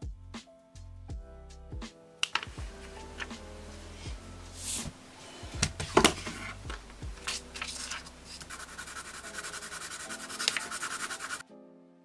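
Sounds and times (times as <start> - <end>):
paper rustling: 2.2 - 11.4
pencil scratching on paper: 3.8 - 6.6, 7.2 - 11.4.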